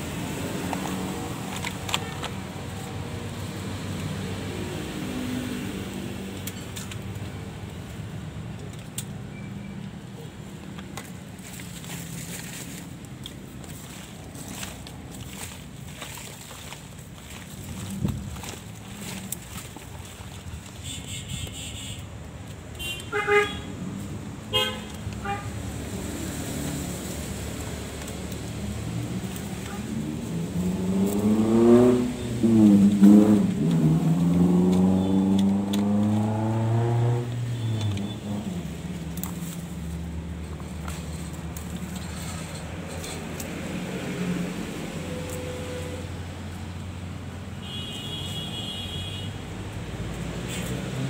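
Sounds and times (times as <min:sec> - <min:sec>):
low hum of road traffic: 0:00.0 - 0:51.0
vehicle horn honking: 0:20.8 - 0:22.1, 0:22.8 - 0:23.7, 0:24.5 - 0:25.6, 0:47.6 - 0:49.4.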